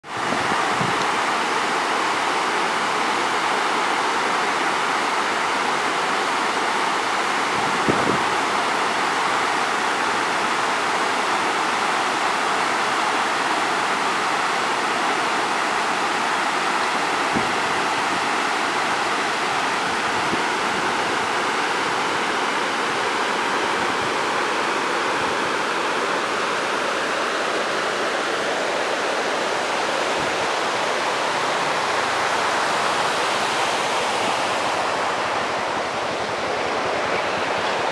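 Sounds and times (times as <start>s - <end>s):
stream rushing over boulders: 0.0s - 37.9s.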